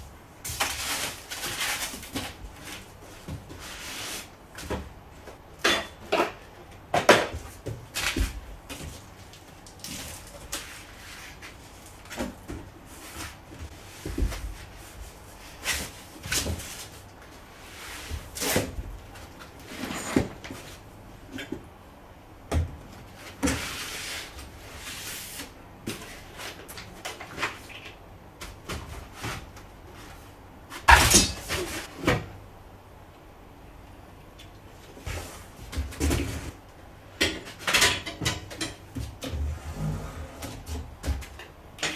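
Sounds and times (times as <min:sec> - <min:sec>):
cardboard and foam rustling: 0:00.4 - 0:05.2, 0:07.1 - 0:20.9.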